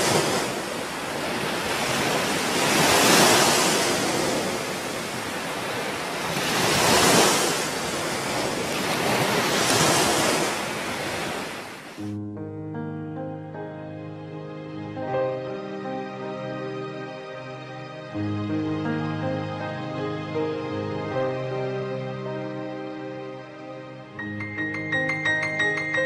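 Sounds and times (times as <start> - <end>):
waves washing onto shore: 0.0 - 12.1
wind: 0.0 - 12.2
soft instrumental music: 12.0 - 26.0.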